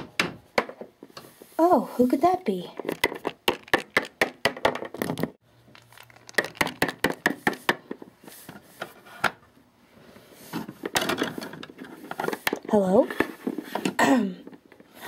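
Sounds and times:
plastic toy figures tapping: 2.8s - 5.3s, 6.2s - 7.8s.

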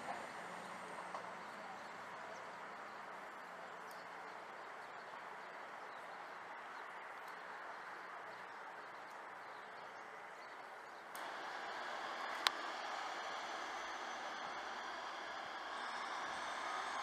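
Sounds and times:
faint diesel train running: 0.0s - 17.0s
faint bird chirps: 4.8s - 17.0s.

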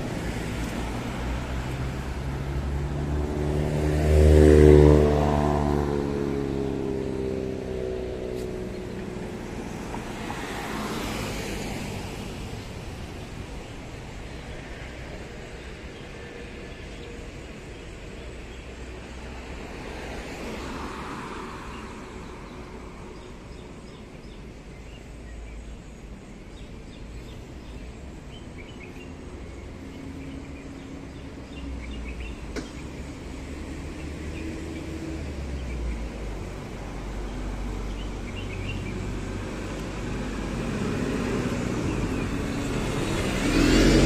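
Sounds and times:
vehicle passing: 0.0s - 17.4s, 28.8s - 44.0s
traffic noise with low rumble: 0.0s - 44.0s.

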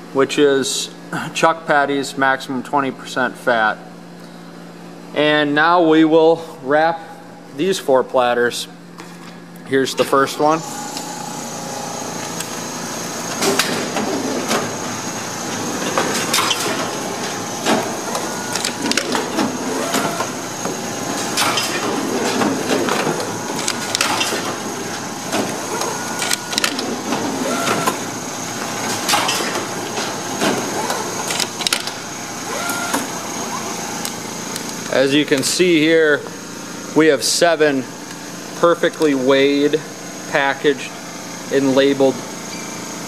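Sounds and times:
wrapping machine whirring: 10.4s - 35.6s
machine clacks and snaps: 15.8s - 32.0s.

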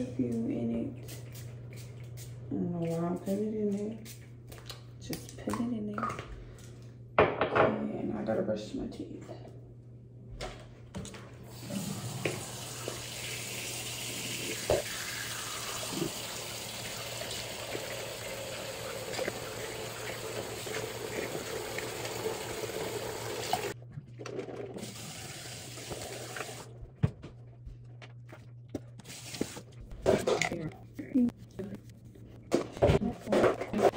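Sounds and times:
faucet running into sink: 11.5s - 23.8s
person spitting into sink: 15.6s - 16.5s, 17.3s - 22.6s.

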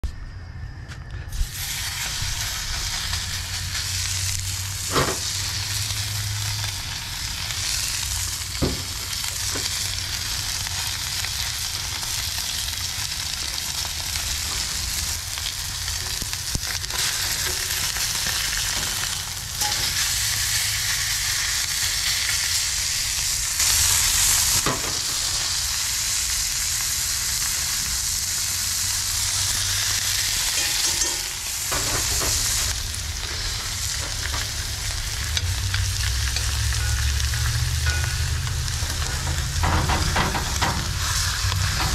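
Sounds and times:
steak sizzling in skillet: 1.3s - 41.9s
metal tongs clicking: 30.6s - 31.8s.

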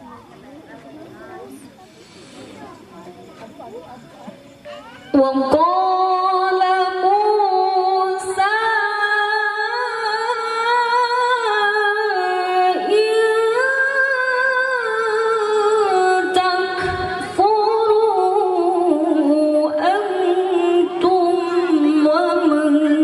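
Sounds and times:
woman reciting melodically: 4.8s - 23.0s.

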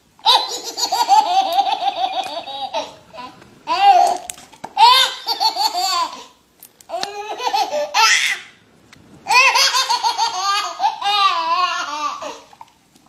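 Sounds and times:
baby laughing: 0.2s - 4.2s, 4.8s - 6.3s, 6.9s - 8.5s, 9.3s - 12.5s.

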